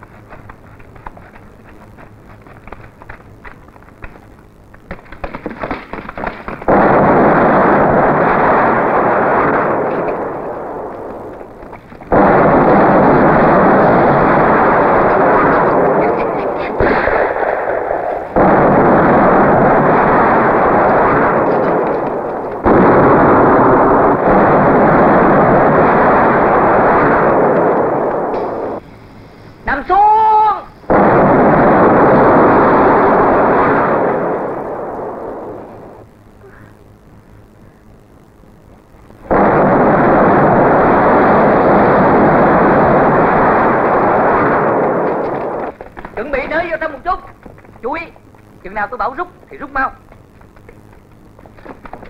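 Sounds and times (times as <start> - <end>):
large explosions rumbling: 0.0 - 52.0
gunshots: 4.8 - 28.8, 30.9 - 36.0, 39.2 - 48.1.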